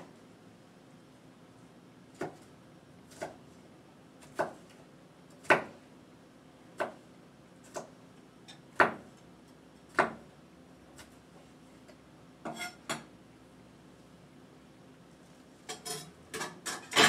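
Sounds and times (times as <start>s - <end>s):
knife chopping on cutting board: 2.2s - 2.5s, 3.1s - 3.4s, 4.2s - 4.7s, 5.4s - 5.8s, 6.8s - 7.0s, 8.8s - 9.1s, 9.9s - 10.2s.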